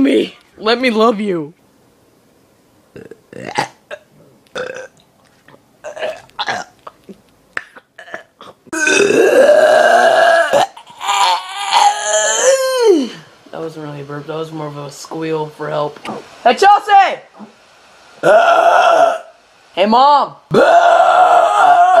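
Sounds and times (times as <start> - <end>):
person burping: 2.9 - 5.0, 5.8 - 13.2
strained squealing burp: 2.9 - 7.0, 7.6 - 12.6, 18.2 - 19.4.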